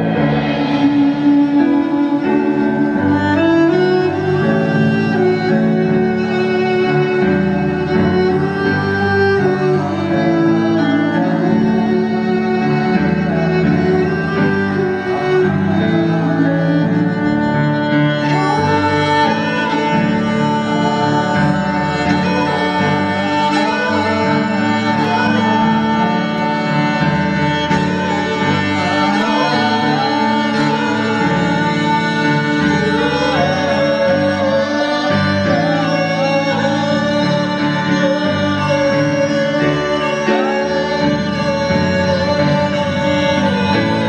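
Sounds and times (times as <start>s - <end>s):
electric keyboard accompaniment: 0.0s - 44.0s
violin melody: 0.0s - 44.0s.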